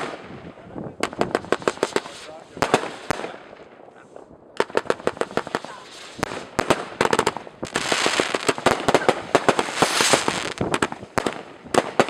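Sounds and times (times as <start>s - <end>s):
fireworks bangs and crackles: 0.0s - 12.0s
firework rushing hiss: 1.1s - 3.4s, 4.7s - 12.0s.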